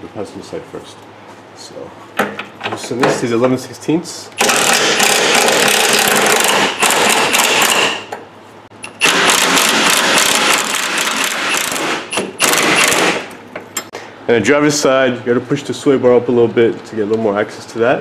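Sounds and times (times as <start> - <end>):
impact wrench hammering: 4.4 - 8.2, 8.8 - 13.4.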